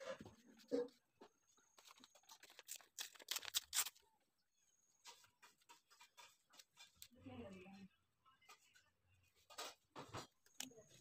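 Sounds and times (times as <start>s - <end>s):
paper pages rustling: 0.0s - 4.0s.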